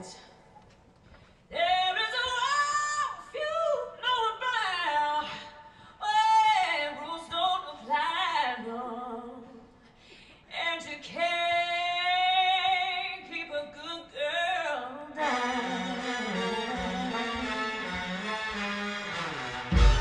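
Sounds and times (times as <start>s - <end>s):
woman singing: 1.5s - 9.7s, 10.5s - 17.7s.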